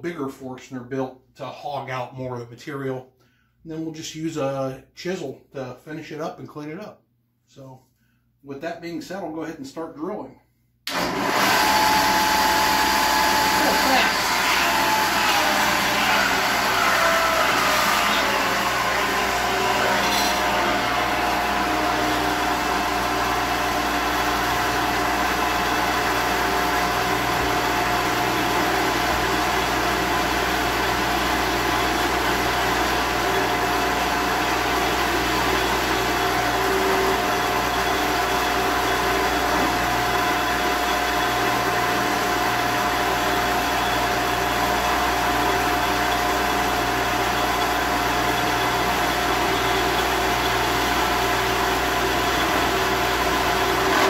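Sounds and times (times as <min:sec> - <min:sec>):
drill bit boring into wood: 0:10.9 - 0:54.0
drill press motor hum and whine: 0:10.9 - 0:54.0.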